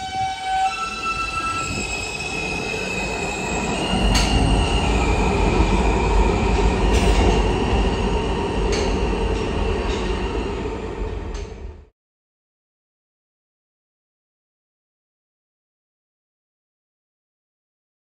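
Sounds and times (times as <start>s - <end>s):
train wheels rumbling on rail: 0.0s - 11.9s.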